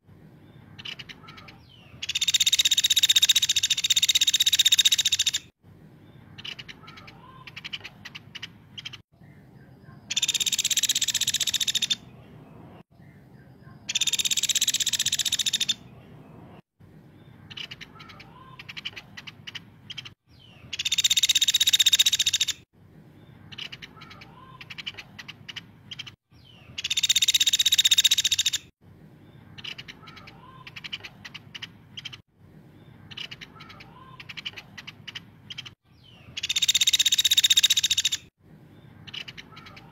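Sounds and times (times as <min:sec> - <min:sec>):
woodpecker rattling trills: 0:00.8 - 0:05.5, 0:10.1 - 0:12.0, 0:13.9 - 0:15.8, 0:20.7 - 0:22.6, 0:26.8 - 0:28.7, 0:36.4 - 0:38.3.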